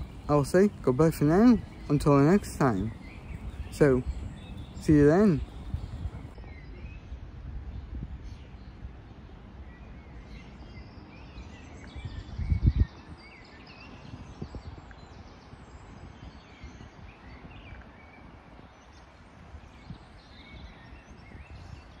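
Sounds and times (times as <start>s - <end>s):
birds chirping and singing: 0.0s - 7.1s
wind buffeting on microphone: 0.0s - 9.6s, 11.7s - 22.0s
steady outdoor hiss: 0.0s - 22.0s.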